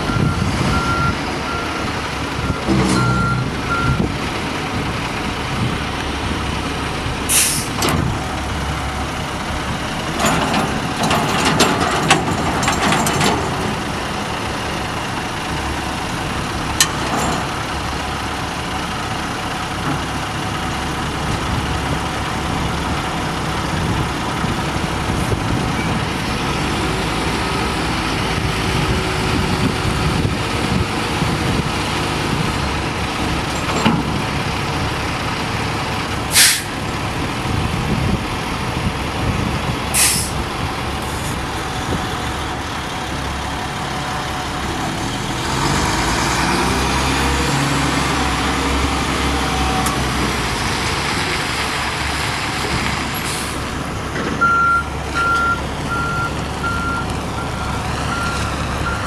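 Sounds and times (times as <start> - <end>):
diesel truck engine running: 0.0 - 59.0
air brake hisses: 7.3 - 7.8, 36.3 - 36.8, 40.0 - 40.4, 53.2 - 53.6.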